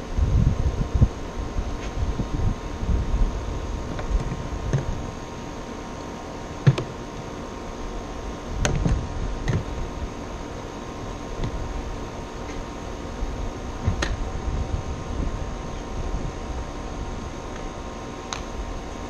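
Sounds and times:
steady background hiss: 0:00.0 - 0:19.0
engine cover knocks and clicks: 0:06.6 - 0:06.9.

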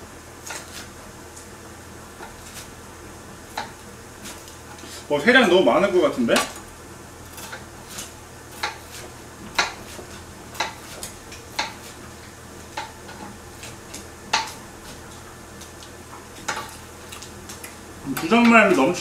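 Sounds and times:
knife cutting dry bread: 0:07.2 - 0:12.0.

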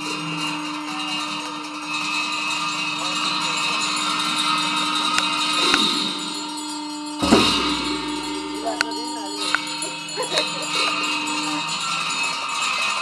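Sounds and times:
small bells jingling: 0:00.0 - 0:13.0
held drone: 0:07.2 - 0:09.8
monks chanting: 0:07.2 - 0:12.1.

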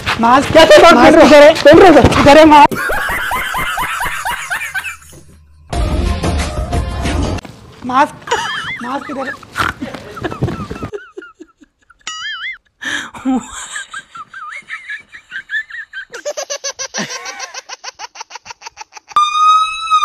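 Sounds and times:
comedic laughter sound effects: 0:02.7 - 0:05.2, 0:08.3 - 0:12.7, 0:13.4 - 0:20.0.

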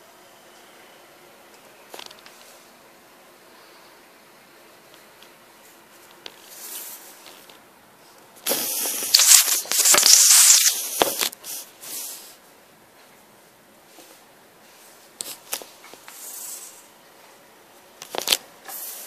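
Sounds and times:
handling noise rubbing: 0:08.4 - 0:12.3.

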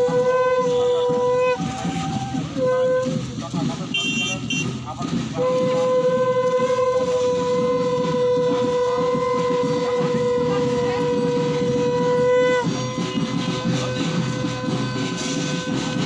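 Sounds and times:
long horn note: 0:05.4 - 0:16.0.

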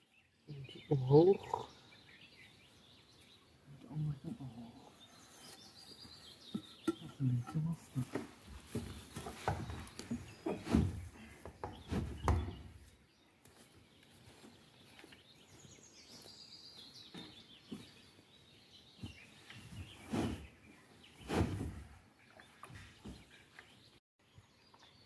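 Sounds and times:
songbird singing: 0:00.0 - 0:25.0
dull knocks and thuds: 0:08.6 - 0:12.8.

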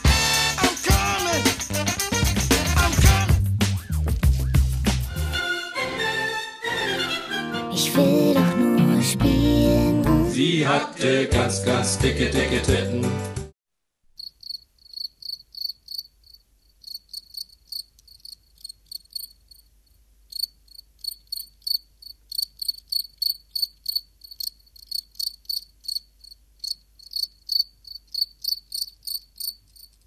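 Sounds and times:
crickets chirping: 0:14.2 - 0:30.0.

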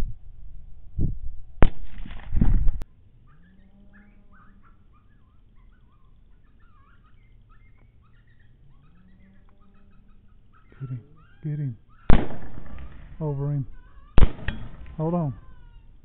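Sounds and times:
suppressed rifle shot rush: 0:01.6 - 0:02.8, 0:12.1 - 0:13.6, 0:14.2 - 0:15.5
faint bird chirps: 0:02.8 - 0:16.0.

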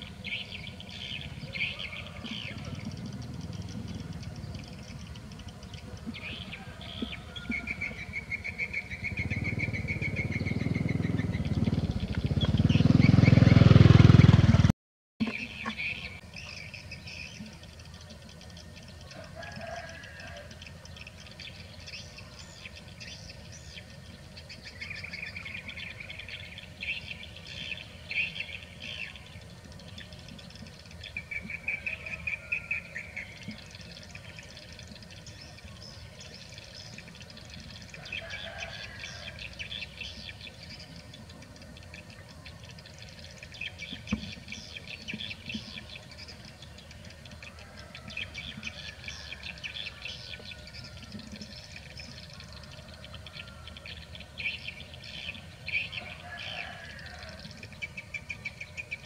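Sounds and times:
small birds chirping: 0:00.0 - 0:13.7, 0:15.2 - 0:59.0
low outdoor rumble: 0:00.0 - 0:14.7.

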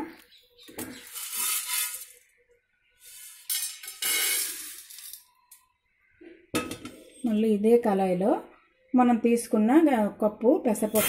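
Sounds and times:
pearls rattling in steel vessel: 0:03.5 - 0:05.2.

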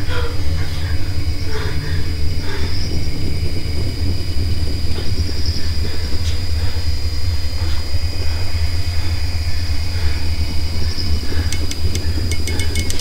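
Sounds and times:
low rumbling drone: 0:00.0 - 0:13.0
thin high whine: 0:10.8 - 0:13.0.

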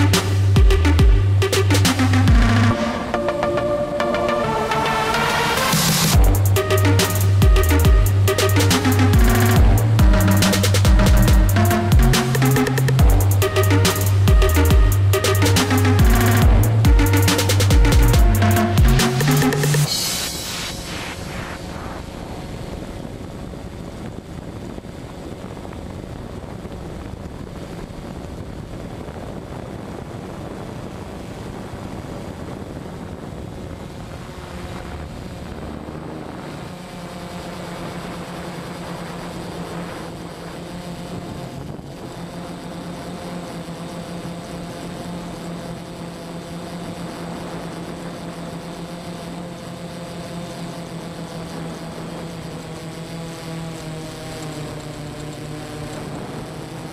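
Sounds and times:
drone propellers whirring: 0:00.0 - 0:56.9.

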